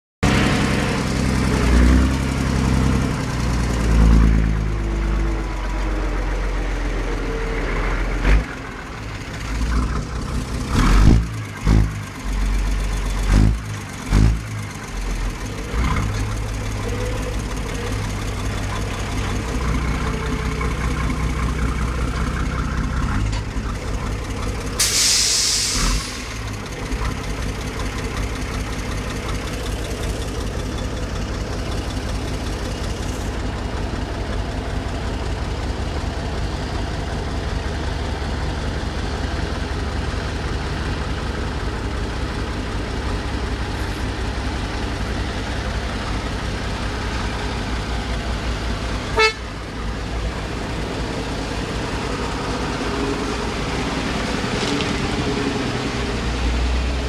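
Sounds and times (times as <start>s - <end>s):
diesel truck engine revving and idling: 0.2s - 57.0s
compressed air hiss: 24.8s - 26.3s.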